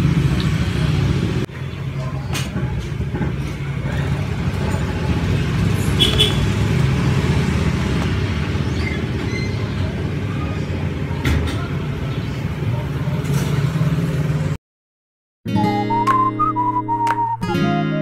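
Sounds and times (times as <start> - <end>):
road traffic rumble: 0.0 - 14.6.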